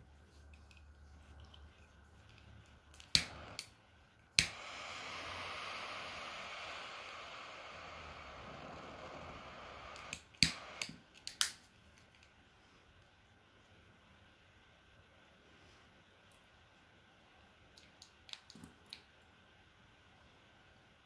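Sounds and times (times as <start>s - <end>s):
jet flame hissing: 2.9s - 11.1s
torch lighter clicks: 3.0s - 3.8s, 4.4s - 11.6s.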